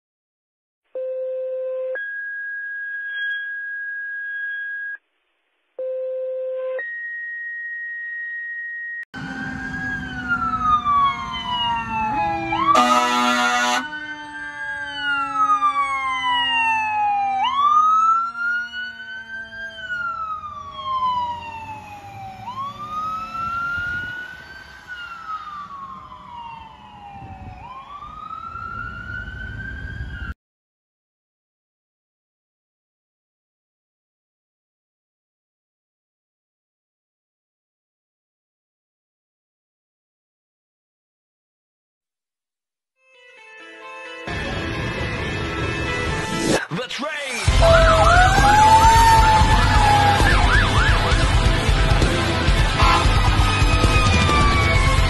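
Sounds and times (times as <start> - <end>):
fire engine siren wailing: 9.2 - 30.4, 44.2 - 46.6, 47.4 - 55.0
two-tone dispatch alert: 12.0 - 14.0
air horn blast: 12.6 - 13.9, 52.6 - 53.6.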